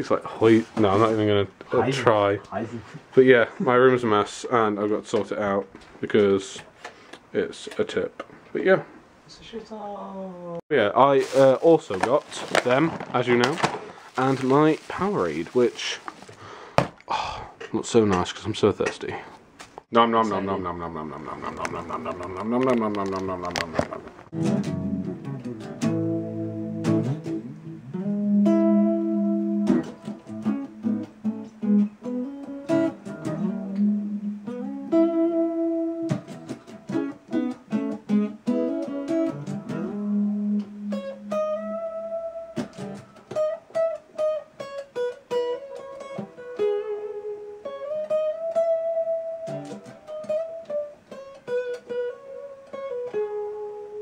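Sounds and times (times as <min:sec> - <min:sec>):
electric guitar playing: 0:20.0 - 0:54.0.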